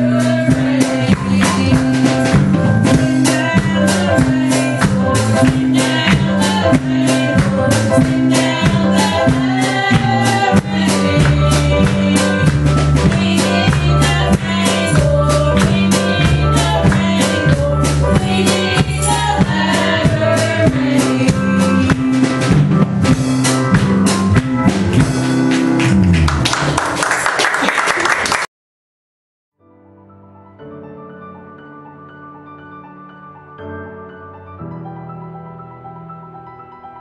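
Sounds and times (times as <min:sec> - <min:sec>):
women singing through microphones: 0:00.0 - 0:02.3, 0:02.9 - 0:21.8
bass notes: 0:00.0 - 0:27.0
electric keyboard: 0:00.0 - 0:27.0, 0:29.6 - 0:37.0
drum kit beat: 0:00.0 - 0:27.3.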